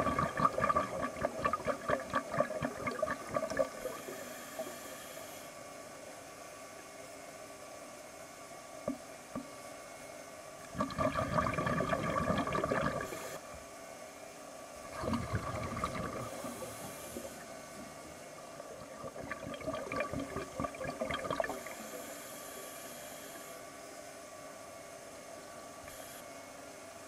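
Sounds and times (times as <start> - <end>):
underwater regulator bubbling: 0.0 - 4.7, 10.7 - 13.3, 14.9 - 17.5, 18.7 - 21.9
regulator inhalation hiss: 3.8 - 5.6, 16.2 - 17.5.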